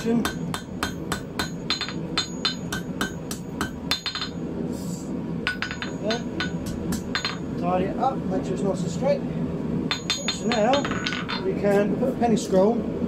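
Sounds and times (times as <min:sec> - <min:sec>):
hammer striking hot steel on anvil: 0:00.0 - 0:04.5, 0:05.4 - 0:07.6, 0:09.9 - 0:11.8.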